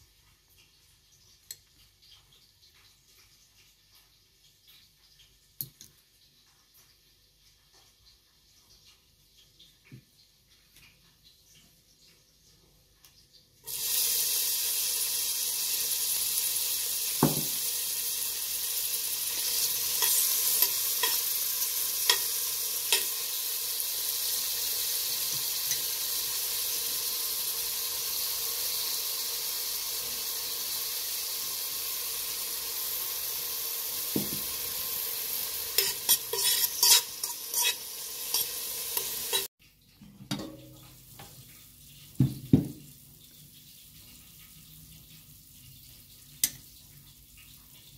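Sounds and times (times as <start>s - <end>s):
onions sizzling in oil: 13.6s - 39.5s.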